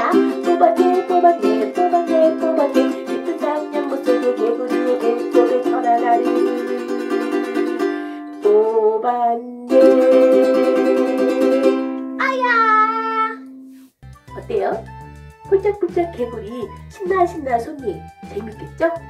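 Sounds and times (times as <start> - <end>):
ukulele strumming: 0.0 - 9.0, 9.7 - 14.5
woman singing: 0.0 - 11.4.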